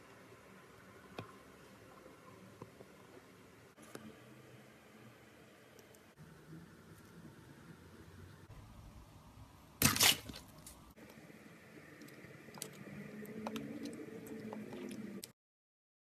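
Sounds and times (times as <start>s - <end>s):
slime crackling burst: 9.8s - 10.7s.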